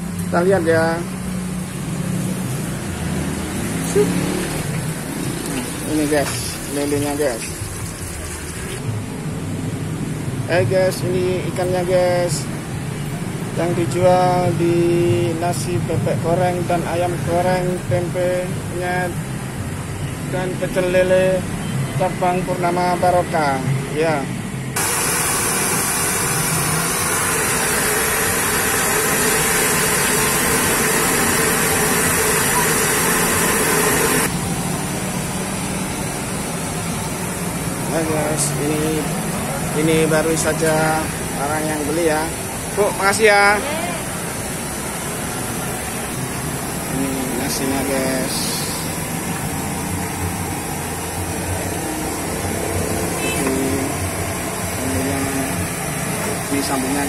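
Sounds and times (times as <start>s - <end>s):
food sizzling in hot oil: 3.9s - 8.8s, 24.8s - 34.4s.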